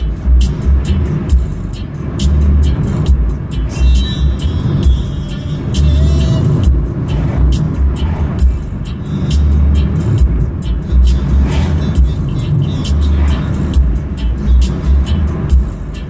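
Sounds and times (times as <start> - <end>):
car road and engine noise: 0.0 - 16.0
music with pulsing bass beat: 0.0 - 16.0.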